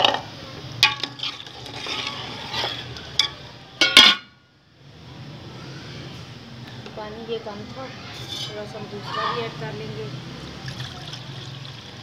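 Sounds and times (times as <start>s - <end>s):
metal ladle clinking on pot: 0.8s - 4.3s
pot lid clanking: 0.8s - 4.3s.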